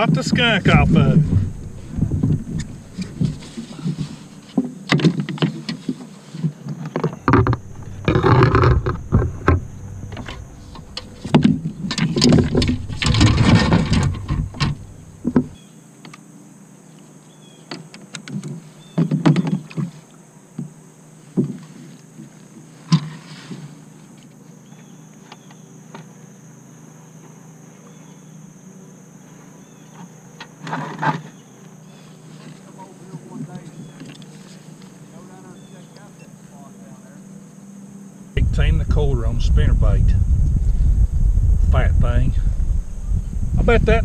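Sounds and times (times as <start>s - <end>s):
rushing noises: 0.0s - 4.6s
gear knocking on plastic kayak: 0.0s - 15.6s.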